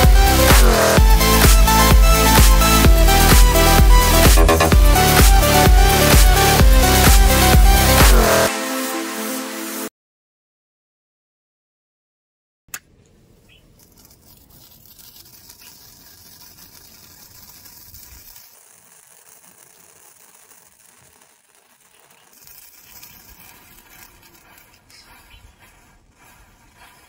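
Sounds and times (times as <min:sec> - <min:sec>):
small crackles: 0:12.7 - 0:27.0
matches fizzing: 0:13.6 - 0:27.0.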